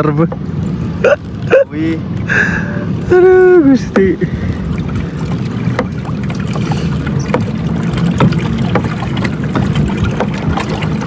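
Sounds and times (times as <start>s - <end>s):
water and wind rushing: 0.0s - 11.0s
splashes and knocks on hull: 3.9s - 11.0s.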